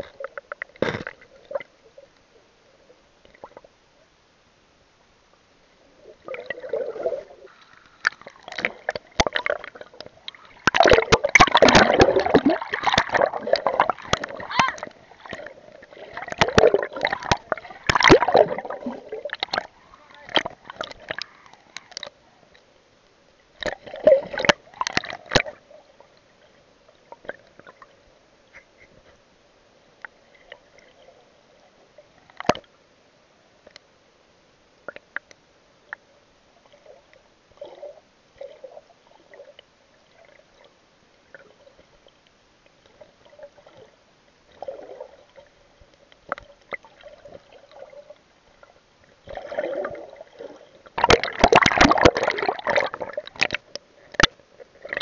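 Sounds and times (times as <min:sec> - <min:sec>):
muffled underwater sloshing: 0:00.0 - 0:33.9, 0:34.6 - 0:55.0
faint steady hum: 0:00.0 - 0:55.0
water splashes: 0:05.8 - 0:22.7, 0:23.5 - 0:28.9, 0:36.6 - 0:55.0.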